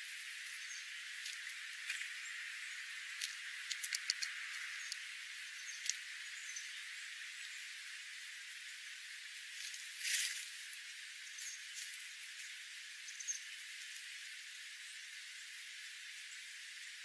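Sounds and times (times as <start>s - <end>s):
steady hiss: 0.0s - 17.0s
bird pecking at seeds on gravel: 3.0s - 6.2s.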